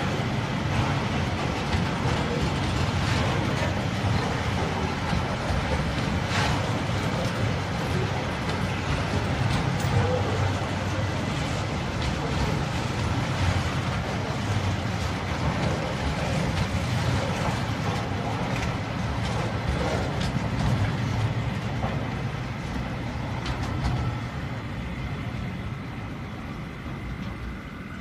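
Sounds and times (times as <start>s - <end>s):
train wheels rumbling on rail: 0.0s - 28.0s
wheels clanking over rail joints: 0.0s - 28.0s.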